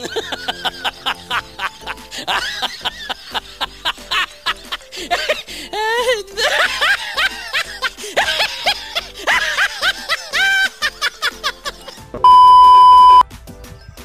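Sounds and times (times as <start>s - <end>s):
comic cackling laughter: 0.0s - 12.2s
background music: 0.0s - 14.0s
loud electronic beep: 12.3s - 13.2s.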